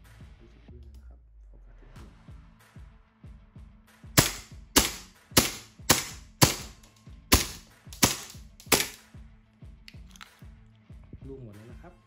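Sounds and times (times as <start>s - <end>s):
airsoft pistol shots cracking: 4.2s - 9.0s.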